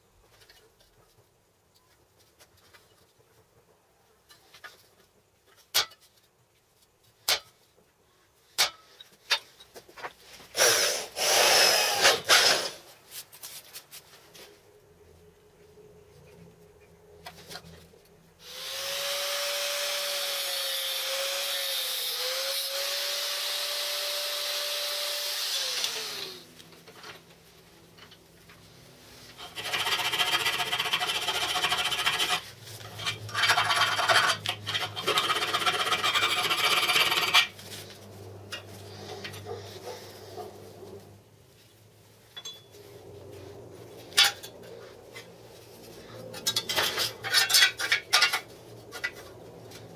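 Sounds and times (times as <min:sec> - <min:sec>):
electric power tool whine: 0:10.6 - 0:12.8, 0:18.4 - 0:26.6
hand file rasping on steel: 0:29.4 - 0:37.5.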